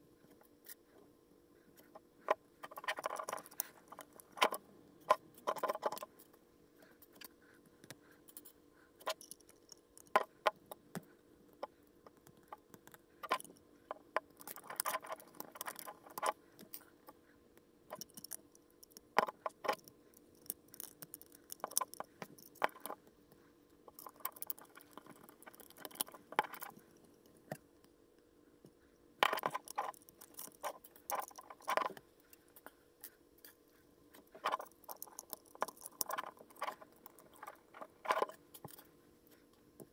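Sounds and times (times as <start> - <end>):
plastic toy bricks clicking: 17.9 - 23.0, 23.9 - 26.7, 29.2 - 32.0, 34.4 - 38.8.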